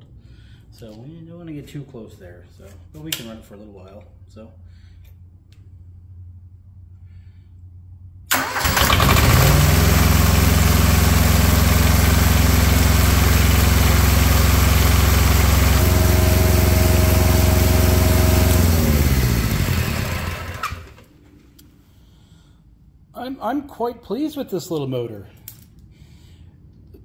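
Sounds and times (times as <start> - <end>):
electric starter cranking: 8.3 - 21.1
small diesel engine running: 8.3 - 21.1.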